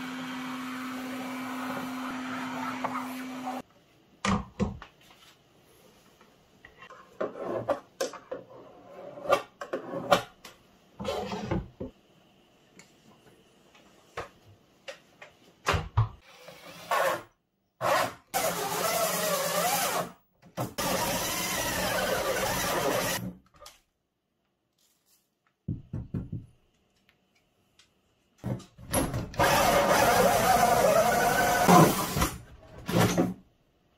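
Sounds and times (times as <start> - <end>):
power drill drilling into wood: 20.8 - 23.2.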